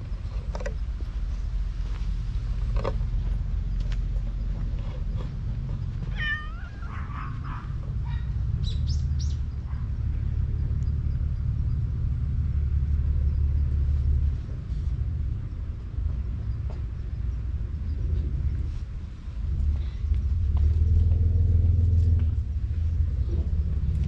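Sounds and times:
steady low rumble: 0.0s - 24.0s
cat meowing: 6.1s - 7.4s.

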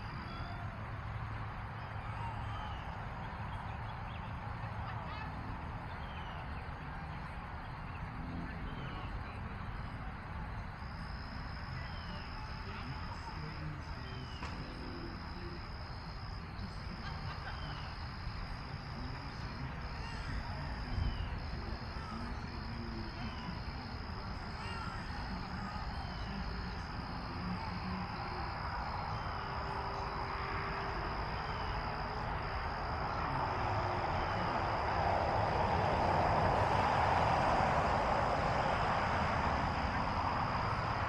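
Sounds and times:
steady background hiss: 9.6s - 41.0s
insect trill: 10.6s - 41.0s.

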